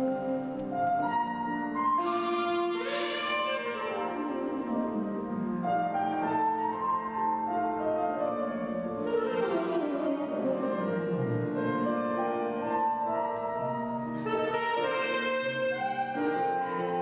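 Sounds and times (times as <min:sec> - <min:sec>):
jazz saxophone improvising: 0:00.0 - 0:06.1, 0:08.9 - 0:11.9, 0:14.1 - 0:17.0
piano and band accompaniment: 0:00.0 - 0:17.0.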